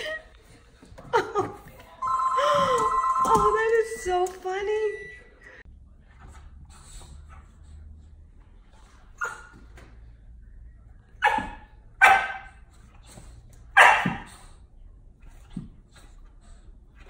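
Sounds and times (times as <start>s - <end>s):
puppy barking: 11.2s - 12.6s, 13.8s - 14.3s.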